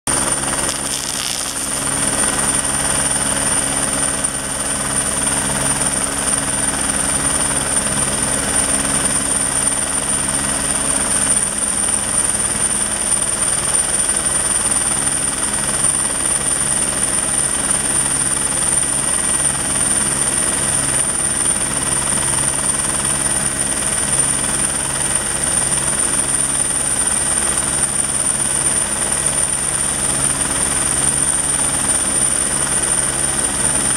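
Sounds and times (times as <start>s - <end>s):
helicopter turbine whine: 0.1s - 33.9s
rotor blades beating: 0.2s - 3.3s.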